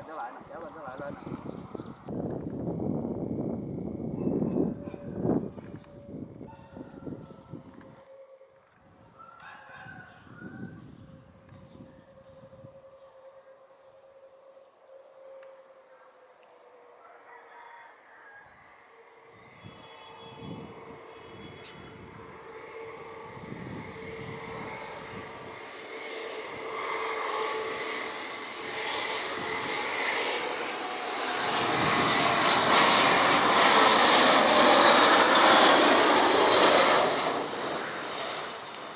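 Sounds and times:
high jet whine: 19.2 - 38.9
jet engines roaring: 19.4 - 38.9.

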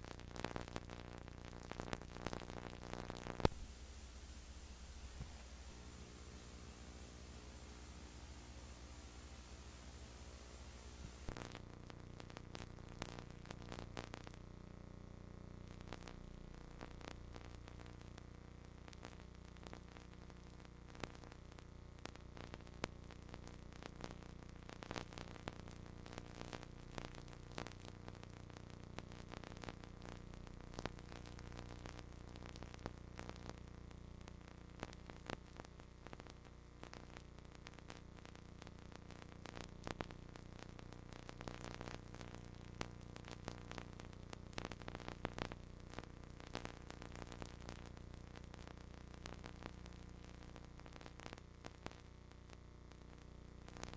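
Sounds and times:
crackling clicks: 0.0 - 3.6, 5.2 - 53.9
low electrical hum: 0.0 - 53.9
static: 0.0 - 53.9
bright hiss: 3.4 - 11.6.

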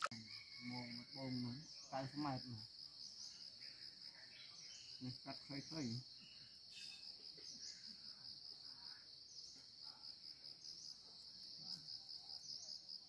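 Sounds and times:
insect pulsing trill: 0.0 - 9.6.

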